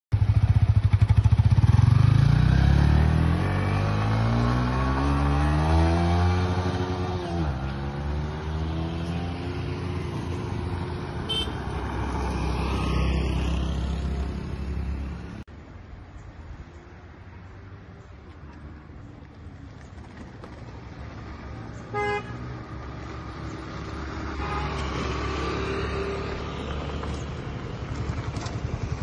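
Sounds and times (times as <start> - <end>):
motorcycle engine accelerating: 0.1 - 15.4.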